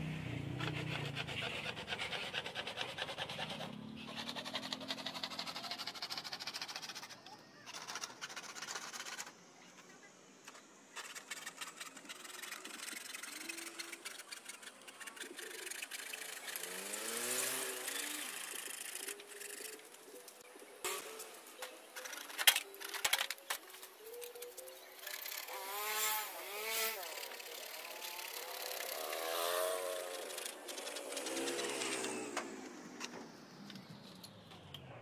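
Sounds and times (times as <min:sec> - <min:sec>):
hacksaw cutting sheet metal: 0:00.6 - 0:09.3.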